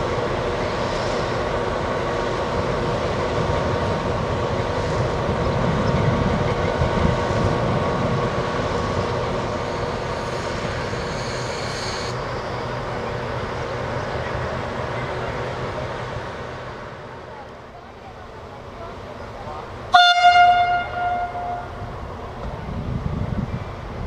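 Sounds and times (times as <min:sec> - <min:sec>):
diesel locomotive engine running: 0:00.0 - 0:24.0
faint high squeal: 0:09.7 - 0:12.6.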